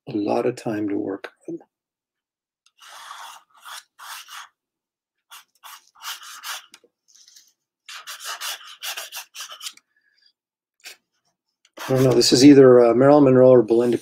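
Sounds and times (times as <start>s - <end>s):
pencil scratching on paper: 2.8s - 4.6s, 5.3s - 9.8s, 11.7s - 12.5s, 13.7s - 14.0s.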